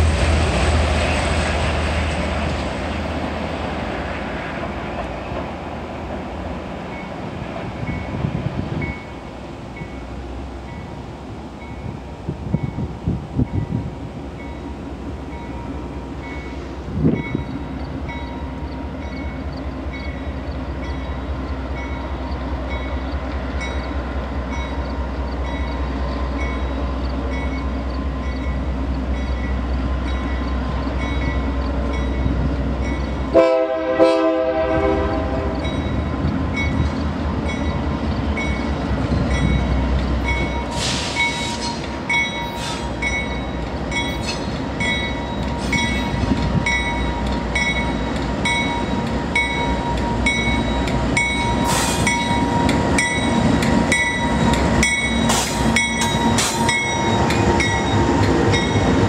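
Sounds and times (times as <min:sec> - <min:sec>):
diesel locomotive rumble: 0:00.0 - 0:59.0
locomotive air horn blast: 0:33.3 - 0:35.6.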